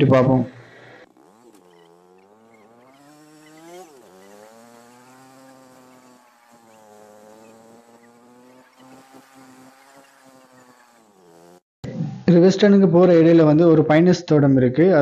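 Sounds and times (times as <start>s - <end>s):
small engine buzzing: 0.0s - 11.7s.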